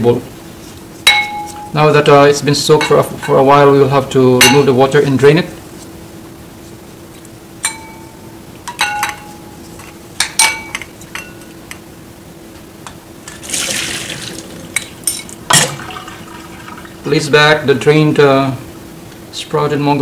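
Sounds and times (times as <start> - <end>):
ceramic ladle clinking bowl: 2.8 - 3.5, 7.6 - 11.5
water splashing through strainer: 13.3 - 14.8.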